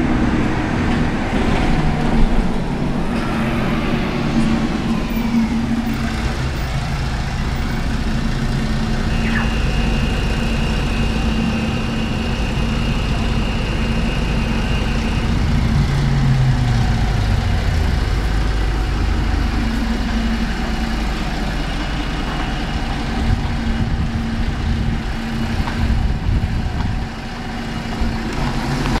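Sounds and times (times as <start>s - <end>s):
steady hum: 0.0s - 28.3s
low engine rumble: 0.0s - 29.0s.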